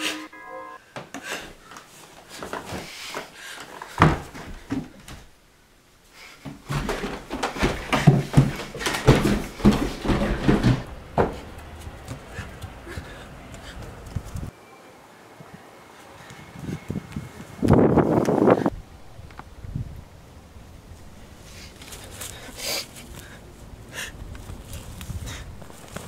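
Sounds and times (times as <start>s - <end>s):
footsteps down wooden stairs: 1.0s - 5.3s, 6.3s - 14.5s.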